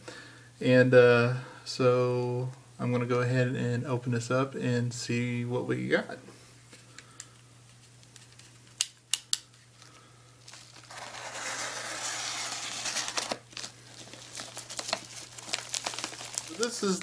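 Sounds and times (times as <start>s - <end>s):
envelope crinkling: 9.7s - 17.0s
mailer tearing open: 10.5s - 17.0s.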